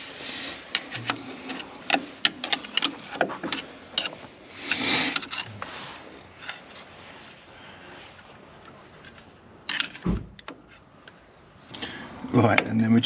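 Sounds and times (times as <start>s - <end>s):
short metal scrape: 0.2s - 6.7s.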